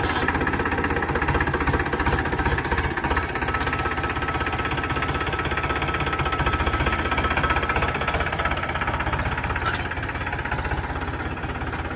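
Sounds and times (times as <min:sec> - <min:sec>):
tractor diesel engine under load: 0:00.0 - 0:11.9.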